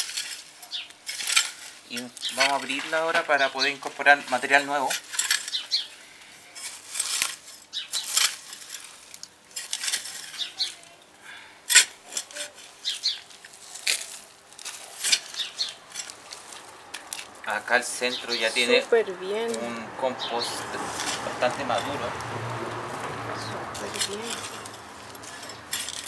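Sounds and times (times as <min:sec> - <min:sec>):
compost crunching and rustling: 0:00.0 - 0:26.0
garden fork stabbing compost: 0:06.6 - 0:10.7, 0:11.7 - 0:17.3, 0:23.7 - 0:26.0.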